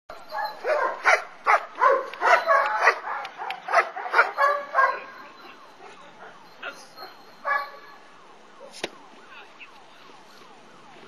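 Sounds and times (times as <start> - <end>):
dog barking: 0.3 - 5.2, 7.0 - 7.8.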